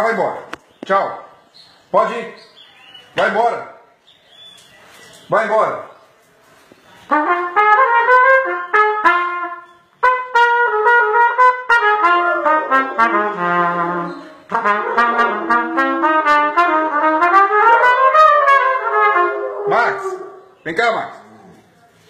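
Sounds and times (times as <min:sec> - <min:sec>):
trumpet playing a tune: 0:07.1 - 0:20.4.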